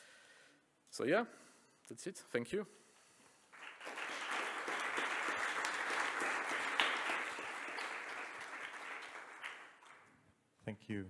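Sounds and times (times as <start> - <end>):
audience applauding: 3.5 - 10.1.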